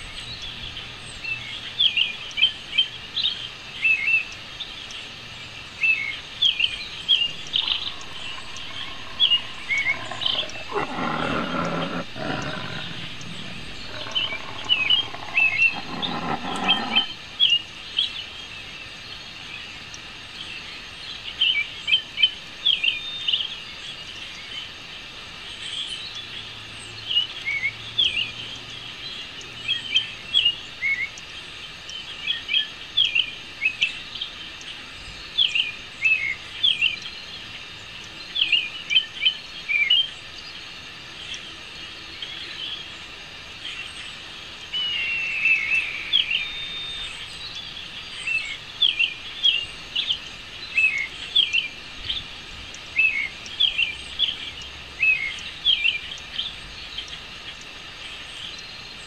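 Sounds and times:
small birds chirping: 5.9s - 17.6s, 44.7s - 52.2s
low noise: 6.8s - 17.5s.

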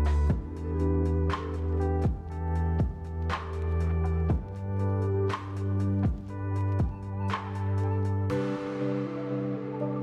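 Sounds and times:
cymbal wash: 8.3s - 10.0s.

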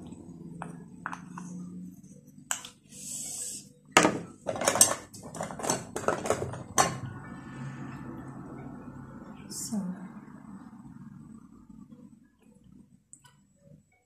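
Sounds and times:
cosmetic bottles clattering: 4.0s - 7.0s.

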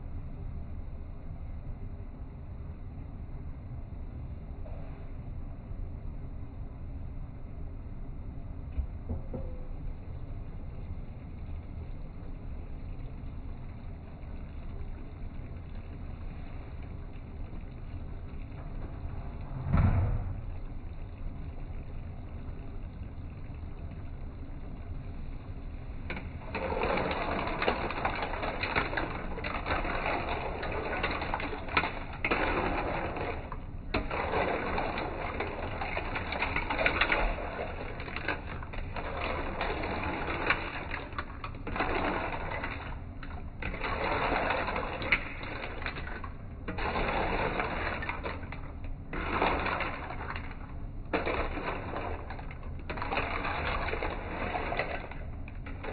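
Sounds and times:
clams sauteing in a wok: 20.6s - 55.9s.

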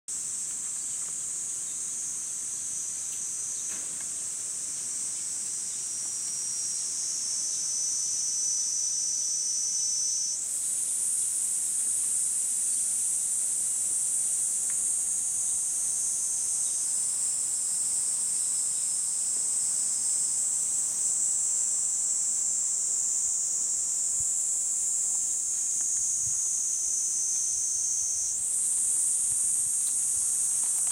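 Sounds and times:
cicadas chorus: 0.1s - 30.9s.

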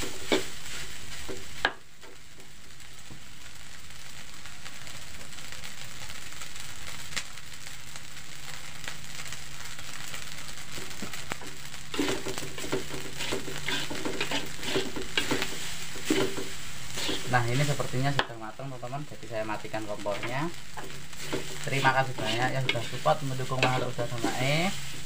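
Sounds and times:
metal spatula scraping wok: 0.0s - 1.6s, 11.9s - 18.3s, 19.5s - 25.0s
rice sizzling in a wok: 0.0s - 25.0s.

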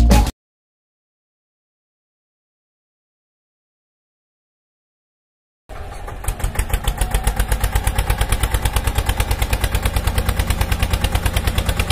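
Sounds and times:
tractor engine idling: 5.7s - 11.9s.

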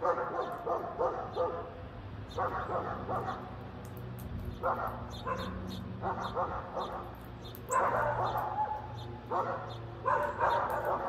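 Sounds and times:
dog barking: 0.0s - 1.7s, 2.3s - 3.5s, 4.6s - 7.1s, 7.7s - 11.0s
small birds chirping: 0.0s - 11.0s.

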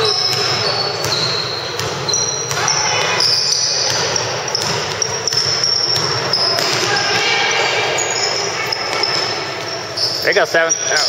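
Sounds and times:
sneakers squeaking on court: 0.0s - 11.0s
basketball bouncing on hardwood floor: 0.2s - 7.5s.

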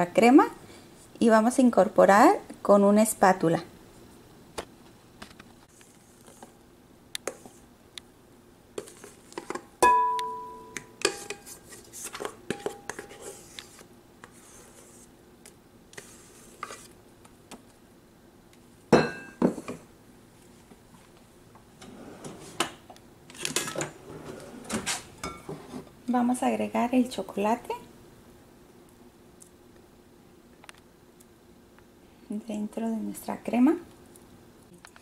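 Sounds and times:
bowl ringing: 9.8s - 10.9s
spatula scraping metal bowl: 11.1s - 15.1s.

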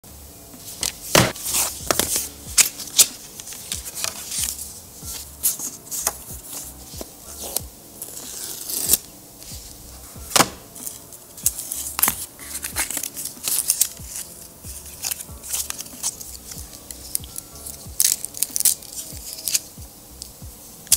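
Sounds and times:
paper rustling and tearing: 0.6s - 9.7s, 10.3s - 19.7s.

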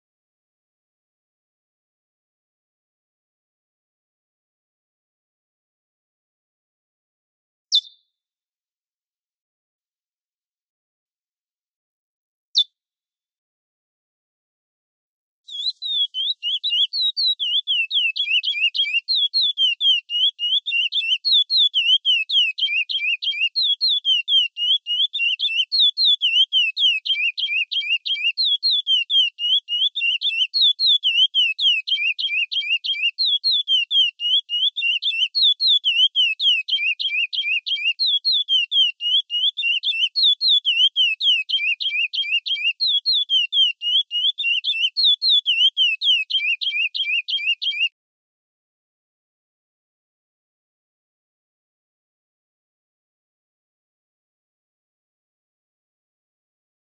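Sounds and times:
finch singing whistled phrases: 7.7s - 8.0s, 15.5s - 47.9s.

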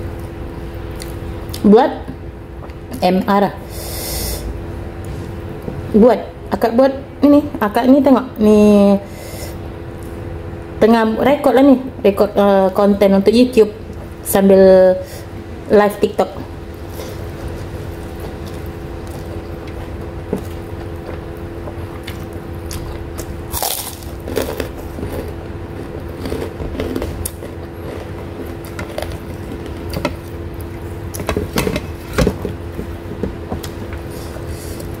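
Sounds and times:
steady low hum: 0.0s - 35.0s
chewing and wet mouth sounds: 0.9s - 1.6s, 16.9s - 31.3s.

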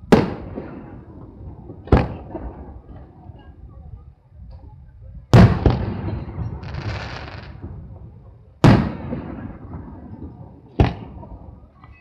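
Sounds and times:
firework booms with rumble: 0.0s - 3.0s, 5.3s - 11.6s
firework hiss: 6.6s - 7.6s.

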